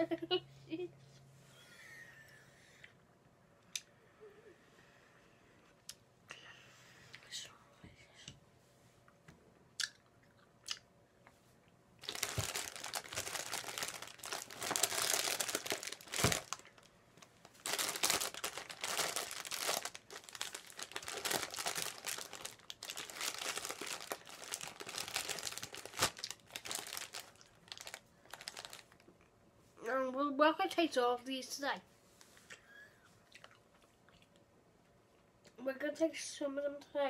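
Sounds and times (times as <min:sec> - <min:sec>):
candy packaging crinkling: 0:12.0 - 0:29.1.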